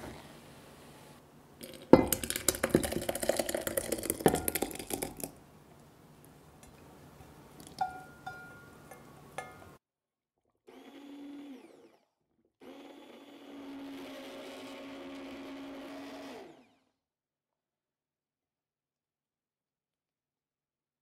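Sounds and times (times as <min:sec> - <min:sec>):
immersion blender motor: 0:10.6 - 0:17.0.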